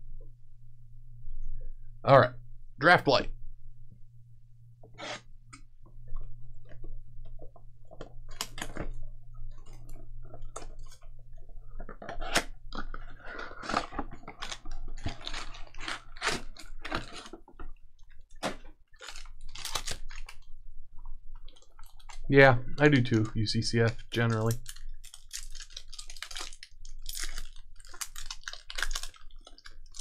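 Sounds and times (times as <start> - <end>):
wrappers crinkling and tearing: 11.8 - 17.4, 18.3 - 20.5, 23.1 - 30.0.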